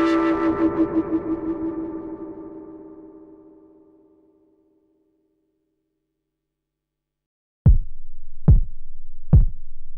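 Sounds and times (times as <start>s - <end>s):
faint synthesizer note: 0.0s - 4.5s.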